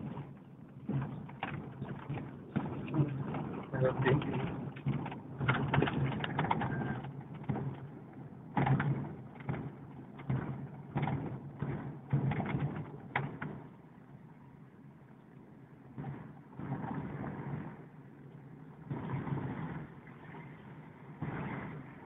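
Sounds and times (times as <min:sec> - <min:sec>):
knocks and rattles from cobbles: 0:00.0 - 0:13.7
low engine hum: 0:00.0 - 0:22.0.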